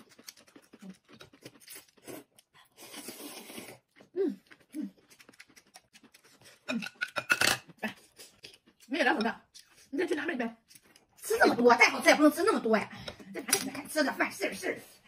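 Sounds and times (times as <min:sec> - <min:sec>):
noodle slurp: 0:00.0 - 0:06.9
chewing and mouth clicks: 0:00.0 - 0:07.2, 0:07.9 - 0:09.9.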